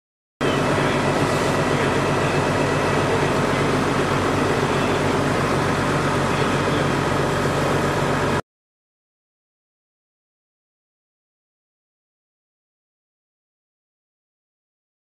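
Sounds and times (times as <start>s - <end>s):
fire engine humming: 0.4s - 8.4s.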